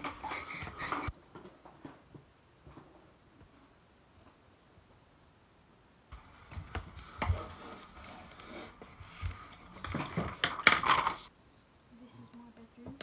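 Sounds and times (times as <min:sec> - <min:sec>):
pencil and paper handled on table: 0:00.0 - 0:02.0, 0:06.1 - 0:11.3.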